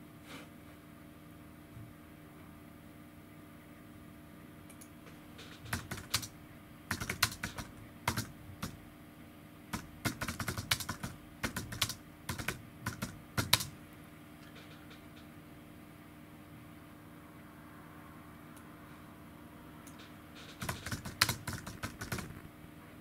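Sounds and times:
typing on computer keyboard: 0:05.4 - 0:06.3, 0:06.9 - 0:08.8, 0:09.7 - 0:13.8, 0:19.9 - 0:22.4.

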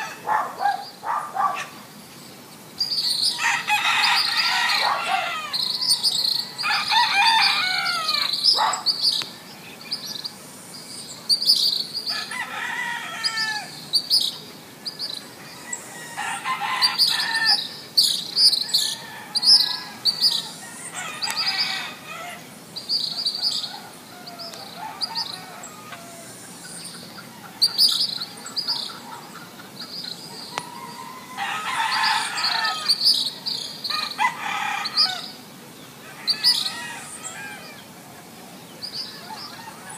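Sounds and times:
rooster crowing: 0:00.0 - 0:00.8, 0:03.3 - 0:08.4, 0:12.1 - 0:13.8, 0:15.4 - 0:17.7, 0:18.6 - 0:22.4, 0:23.2 - 0:26.5, 0:30.5 - 0:33.0, 0:33.9 - 0:35.3, 0:36.0 - 0:37.9, 0:39.2 - 0:39.9
small birds chirping: 0:00.0 - 0:34.2, 0:34.8 - 0:39.9.

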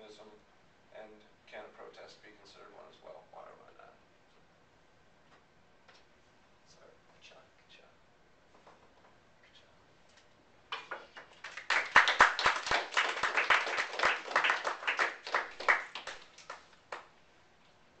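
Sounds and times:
small audience applauding: 0:10.7 - 0:17.1.

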